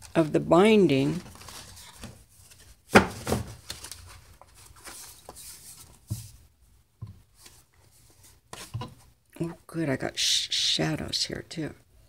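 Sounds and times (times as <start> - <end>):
stiff paper rustling: 0.0 - 6.4.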